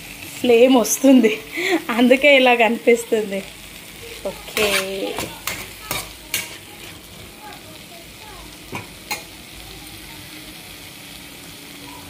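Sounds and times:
vegetables sizzling in oil: 0.0s - 12.0s
steel spoon stirring: 4.5s - 7.3s.

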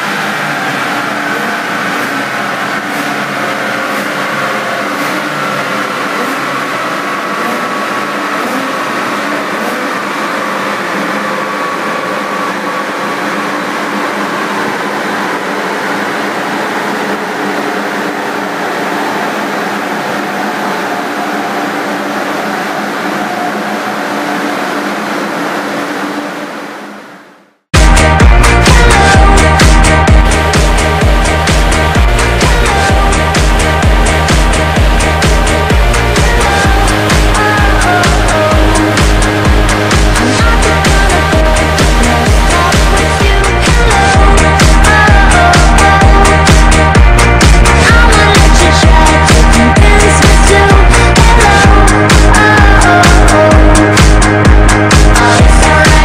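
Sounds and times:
rollers whining spinning down: 0.0s - 56.0s.

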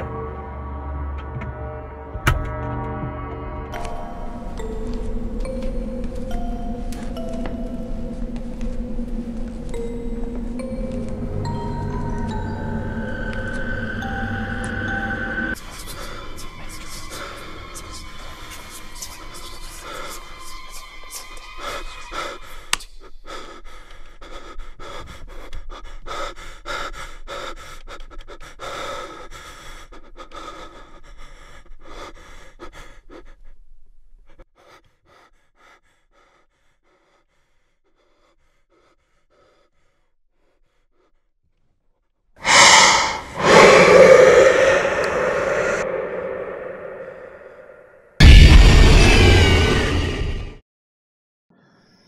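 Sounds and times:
person panting heavily: 21.6s - 33.6s, 34.3s - 41.3s, 42.4s - 47.8s
sudden loud burst: 42.5s - 50.5s.

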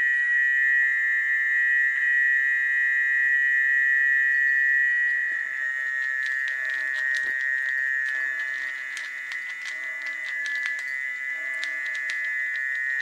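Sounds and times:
chorus of frogs calling: 5.1s - 13.0s.

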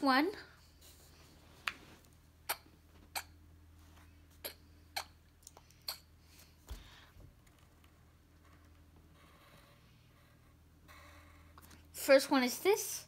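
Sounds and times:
pencil scratching on paper: 9.2s - 11.5s.

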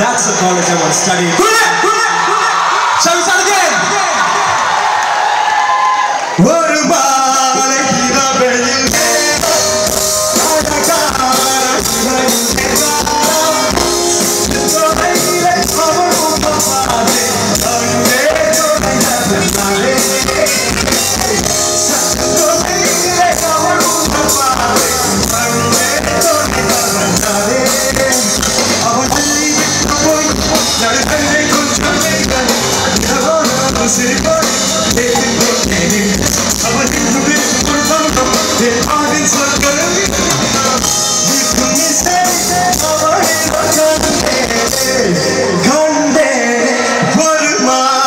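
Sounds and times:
live band playing: 0.0s - 5.0s, 6.2s - 48.0s
man singing into a microphone: 6.4s - 48.0s
drums with a steady beat: 8.8s - 45.3s.

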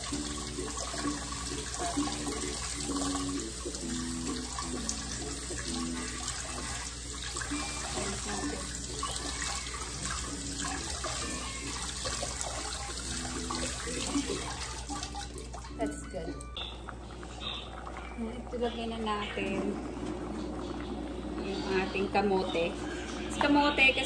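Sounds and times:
faucet running onto vegetables: 0.0s - 24.0s.

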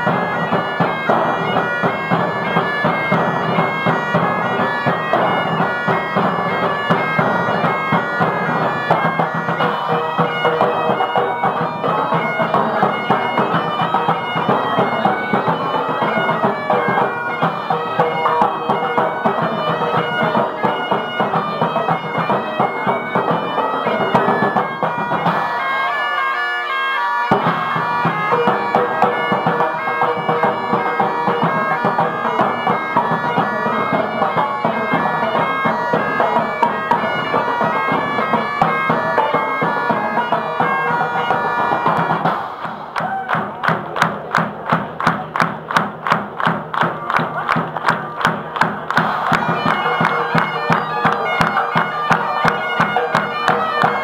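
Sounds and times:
drums: 0.0s - 25.7s, 27.3s - 54.0s
bagpipes playing a tune: 0.0s - 42.3s, 48.1s - 54.0s.

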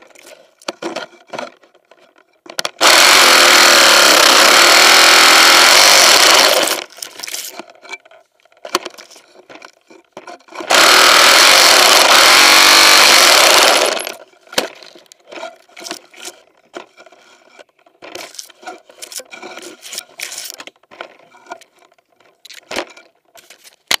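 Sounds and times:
saw cutting branch: 2.8s - 7.5s, 10.7s - 14.2s.

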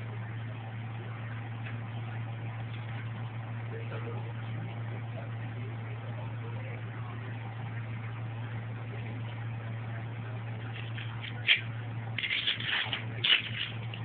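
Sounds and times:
steady low hum: 0.0s - 14.0s
scratchy scuffling: 10.6s - 14.0s.

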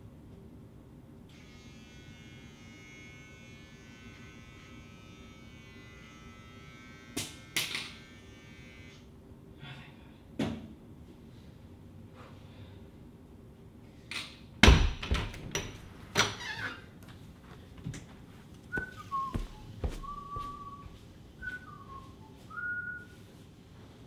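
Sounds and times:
person whistling: 18.7s - 23.2s.

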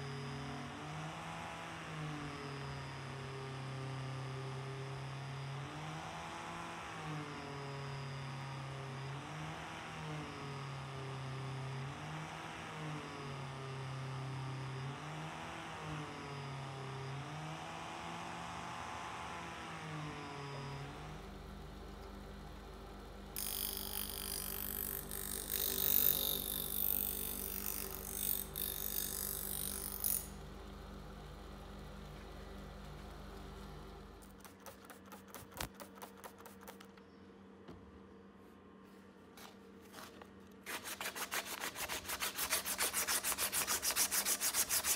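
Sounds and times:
bench grinder humming: 23.0s - 36.8s, 40.7s - 44.9s
angle grinder buffing: 23.4s - 30.3s
knife blade grinding with hiss: 23.4s - 30.3s, 40.7s - 44.9s.

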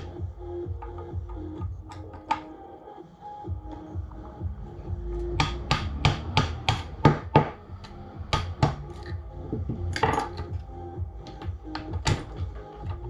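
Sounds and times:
hand tool tapping on metal: 0.7s - 2.5s.

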